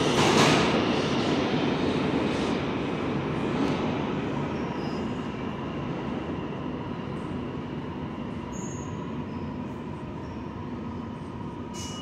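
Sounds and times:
train wheels rumbling on rail: 0:00.0 - 0:12.0
faint high whining tones: 0:07.7 - 0:12.0.

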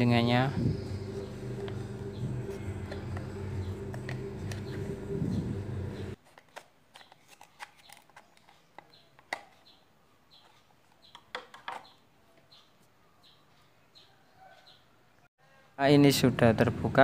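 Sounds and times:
loud drone with held tones: 0:00.0 - 0:06.2.

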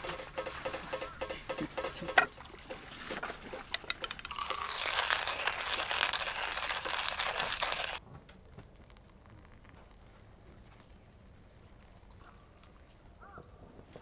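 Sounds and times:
coffee grinder grinding: 0:04.0 - 0:08.0.

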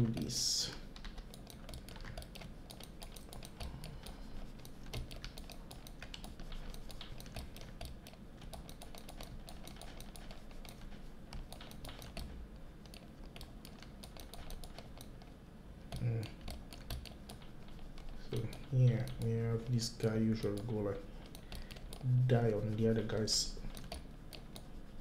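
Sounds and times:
keyboard typing clicks: 0:00.0 - 0:15.3, 0:15.9 - 0:24.8.

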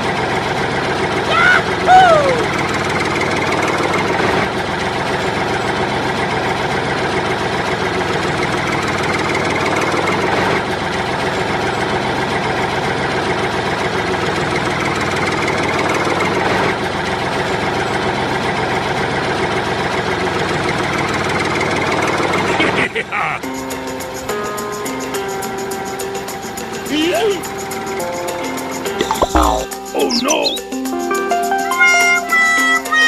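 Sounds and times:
tractor engine idling: 0:00.0 - 0:23.5.

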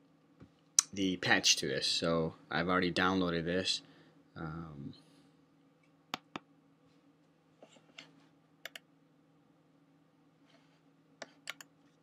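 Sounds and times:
faint room hum: 0:00.0 - 0:12.0
computer mouse clicking: 0:08.6 - 0:08.8, 0:11.2 - 0:11.7.

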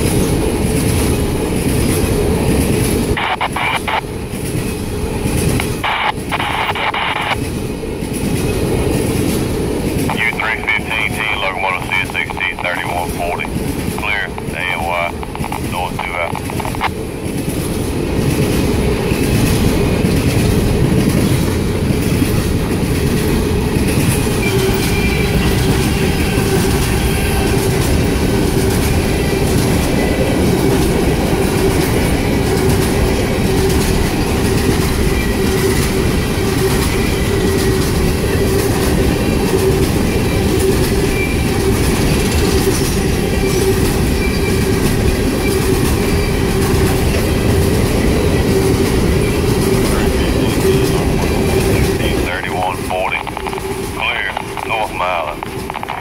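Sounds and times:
freight train wheels rumbling: 0:00.0 - 0:56.0
steady tone: 0:50.6 - 0:56.0.

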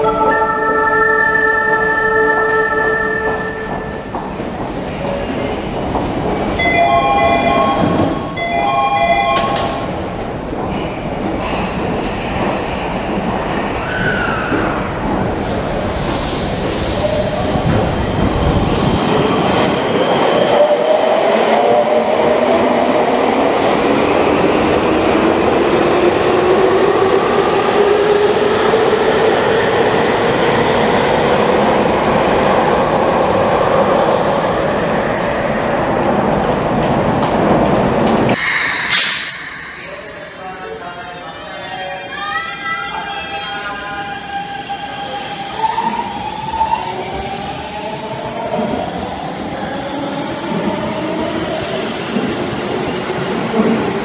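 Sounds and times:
door-closing chime: 0:06.6 - 0:09.9.

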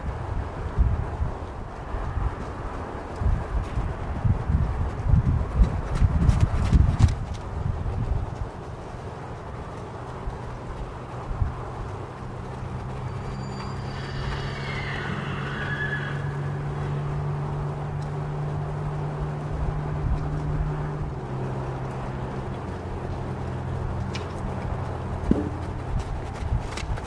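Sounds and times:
hoof clicks: 0:00.0 - 0:27.0
horse whinnying: 0:13.2 - 0:16.6
steady low hum: 0:16.2 - 0:27.0.

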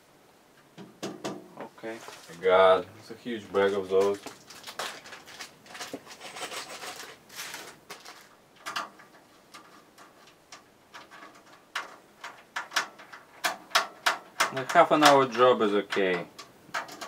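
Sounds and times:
plastic bag rustling: 0:01.8 - 0:08.4.

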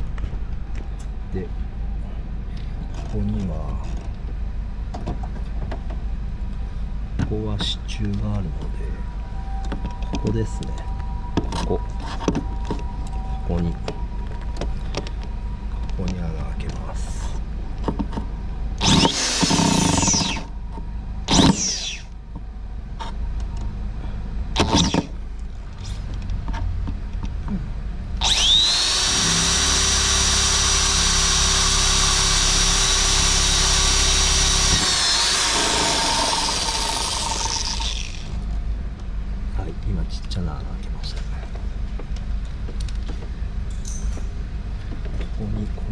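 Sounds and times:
electric drill whining: 0:18.8 - 0:20.5, 0:21.3 - 0:22.1, 0:24.6 - 0:25.1, 0:28.2 - 0:38.4.

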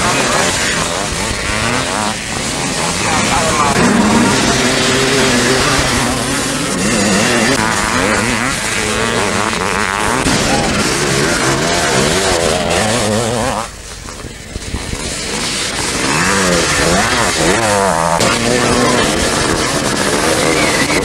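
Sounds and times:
motocross bikes revving past: 0:00.0 - 0:21.0.

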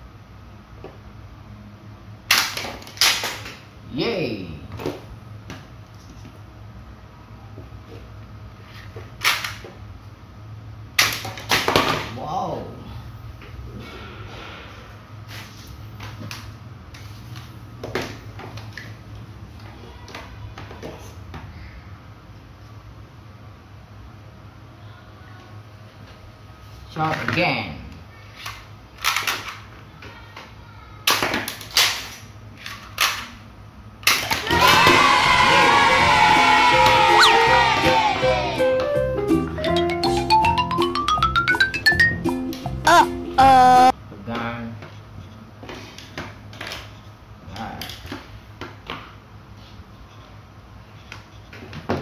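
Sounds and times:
toy gun sharp cracks: 0:02.3 - 0:03.6, 0:09.2 - 0:09.6, 0:31.0 - 0:33.4
plastic toy clicks and clacks: 0:28.4 - 0:29.7.

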